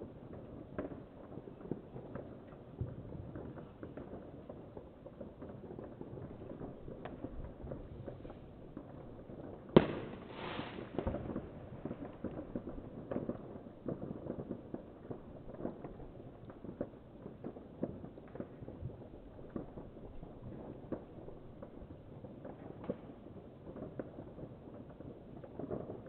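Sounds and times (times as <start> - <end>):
firecrackers popping: 0.0 - 26.0
loud firework bang: 9.8 - 11.6
short hiss: 10.1 - 11.0.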